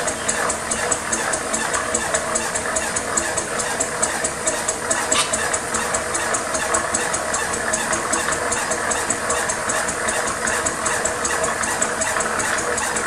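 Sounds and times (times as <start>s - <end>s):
model engine running on compressed air: 0.0s - 13.0s.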